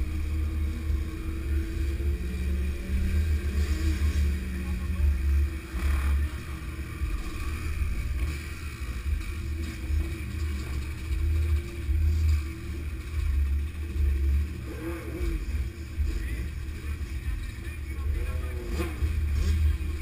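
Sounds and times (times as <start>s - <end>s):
motorcycle engines running: 0.0s - 20.0s.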